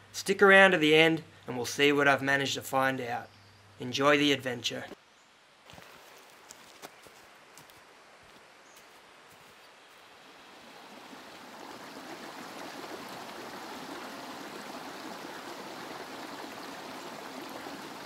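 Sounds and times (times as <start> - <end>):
creek trickling over stones: 5.6 - 7.6, 9.4 - 18.0.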